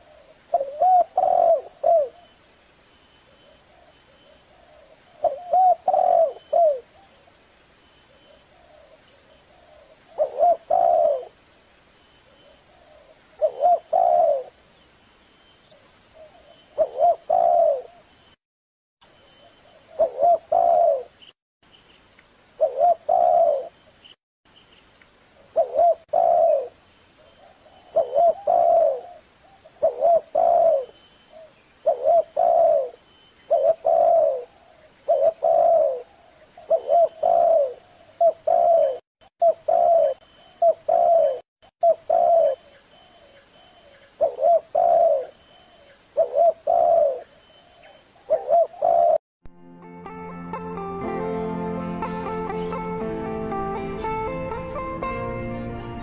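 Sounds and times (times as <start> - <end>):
dove cooing: 0.0 - 2.3, 4.5 - 7.0, 8.5 - 11.4, 12.7 - 14.6, 16.2 - 18.0, 19.8 - 21.2, 22.6 - 23.8, 25.6 - 26.8, 27.4 - 49.2.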